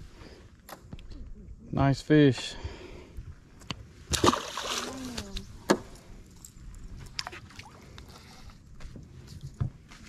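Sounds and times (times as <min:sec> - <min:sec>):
fish splashing into water: 0:04.1 - 0:05.3.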